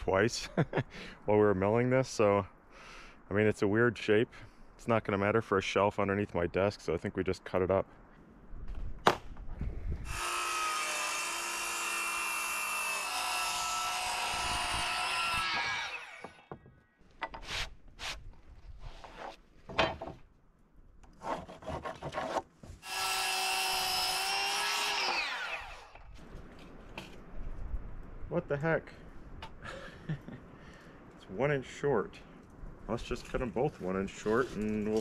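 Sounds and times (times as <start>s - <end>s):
circular saw cutting wood: 10.1s - 16.6s, 22.8s - 26.1s.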